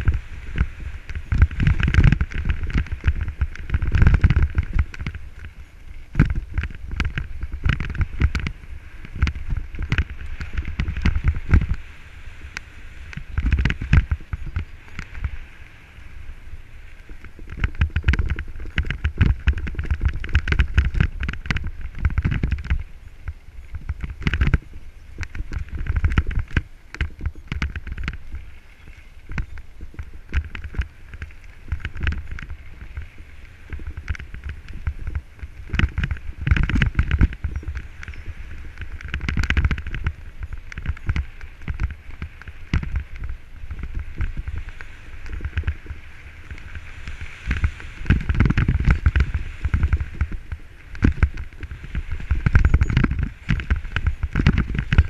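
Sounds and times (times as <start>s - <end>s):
bike knocking and rattling: 0.0s - 15.5s, 16.9s - 55.0s.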